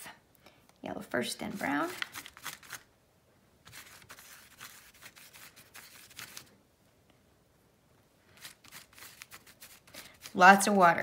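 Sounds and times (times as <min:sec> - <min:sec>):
brush scrubbing on wet paper: 0:03.7 - 0:06.5, 0:08.4 - 0:10.8.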